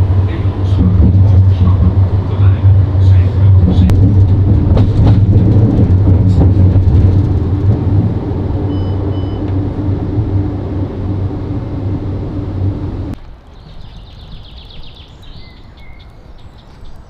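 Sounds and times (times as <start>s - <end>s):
vehicle rumble from inside: 0.0s - 13.2s
short electronic beeps: 8.7s - 9.5s.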